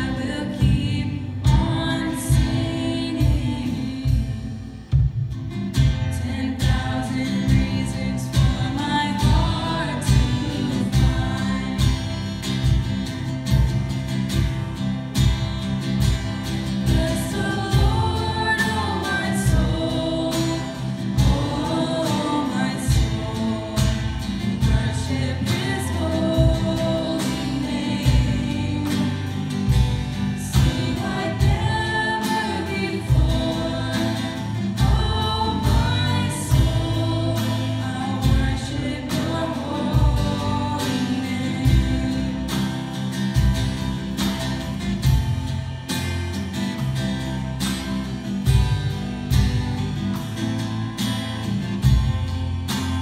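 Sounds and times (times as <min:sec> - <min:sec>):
women singing: 0:00.0 - 0:05.1, 0:05.8 - 0:13.6, 0:16.6 - 0:43.6
drums with steady beat: 0:00.0 - 0:53.0
guitar: 0:00.0 - 0:53.0.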